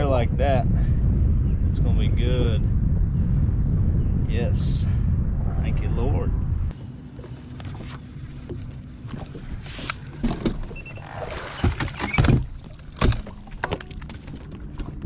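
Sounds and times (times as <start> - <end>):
footsteps on boat deck: 6.8 - 10.7.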